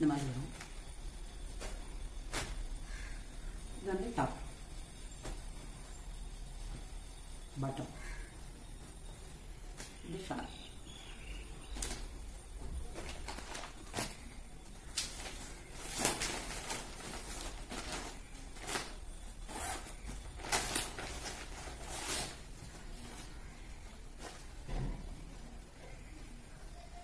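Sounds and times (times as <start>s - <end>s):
plastic packaging rustling: 11.4s - 24.7s.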